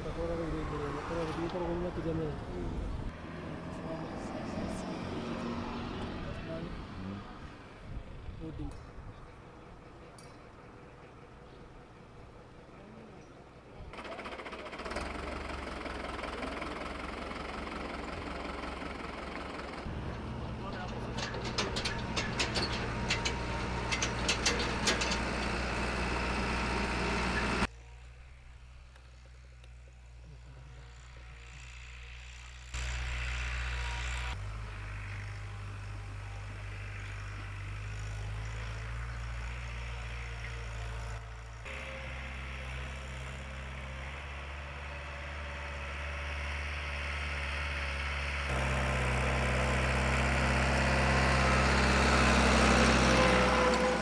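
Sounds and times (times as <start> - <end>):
tractor engine running: 13.9 - 54.0
sharp clicks and rattles: 20.6 - 25.6.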